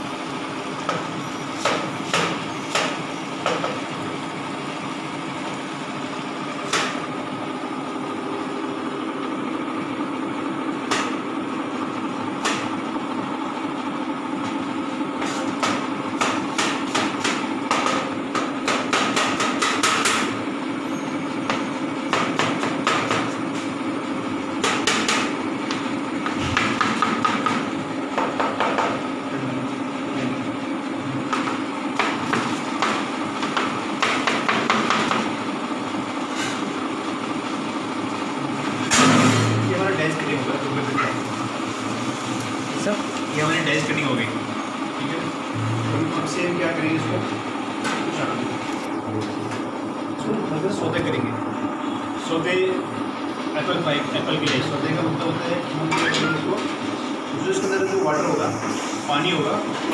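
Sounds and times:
steady hum: 0.0s - 59.9s
knife chopping apple on board: 1.6s - 3.8s, 15.2s - 20.3s, 22.1s - 23.4s, 24.6s - 29.0s, 31.3s - 35.3s.

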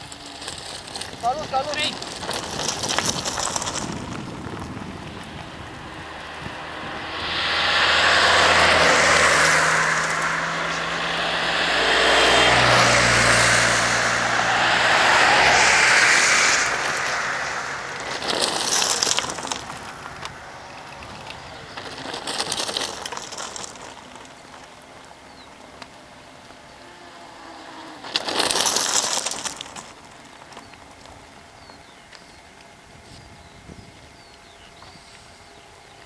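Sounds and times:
bikes rolling past on asphalt: 0.0s - 35.4s
birds chirping: 4.8s - 28.0s, 29.0s - 36.0s.

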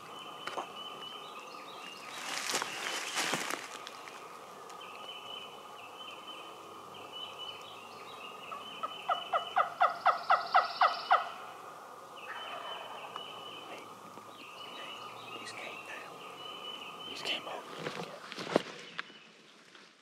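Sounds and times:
turkey gobbling: 8.8s - 11.4s.

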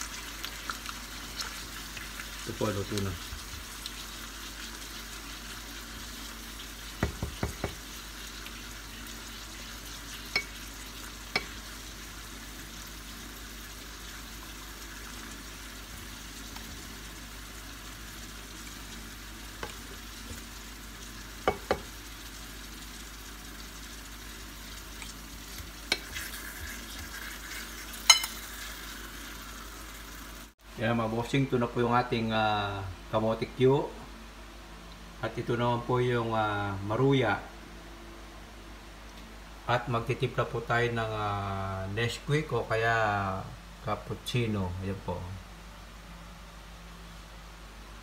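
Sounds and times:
food sizzling in oil: 0.0s - 30.6s
utensils knocking against pan: 7.0s - 7.8s.

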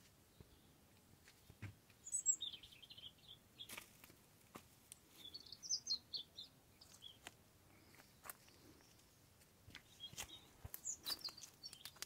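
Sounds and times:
songbird warbling: 2.0s - 3.7s.

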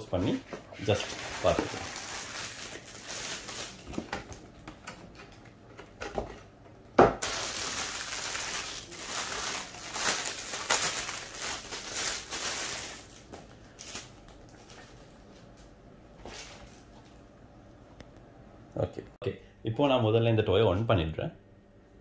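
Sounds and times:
plastic bag crinkling: 0.8s - 4.3s, 7.2s - 15.2s.

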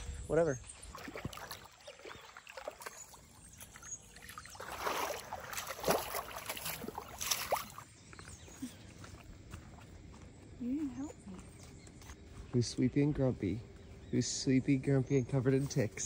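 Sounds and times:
footsteps wading through water: 0.6s - 12.5s.

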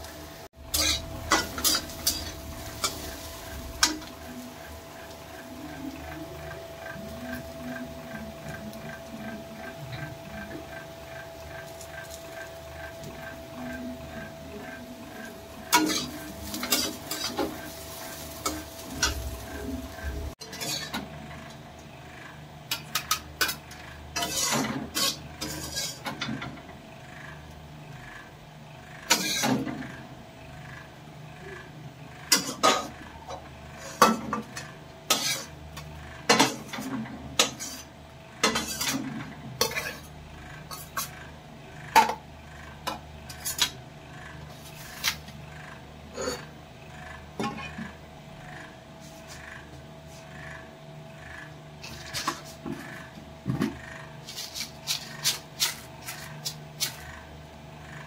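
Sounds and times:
food sizzling: 0.0s - 9.4s, 10.2s - 20.9s
metal utensil scraping pan: 0.6s - 4.4s, 15.6s - 19.4s, 20.0s - 21.0s, 24.2s - 26.1s, 35.1s - 35.6s, 36.3s - 39.0s, 39.6s - 40.1s.

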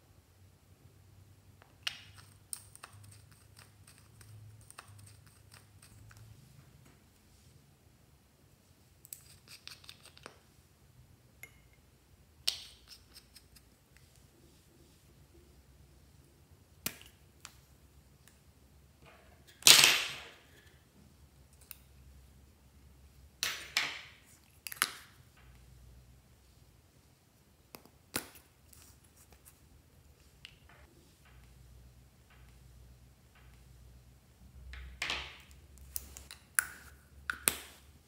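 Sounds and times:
plastic caps clicking and snapping: 34.8s - 37.8s.

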